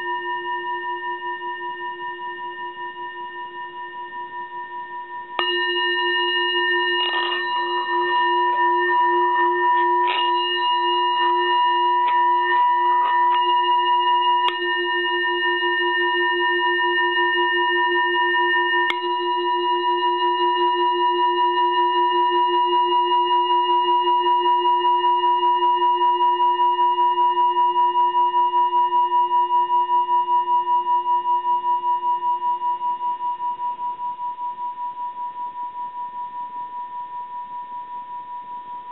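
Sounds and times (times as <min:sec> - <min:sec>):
singing bowl ringing: 0:00.0 - 0:38.9
striker scraping bowl rim: 0:05.4 - 0:16.3.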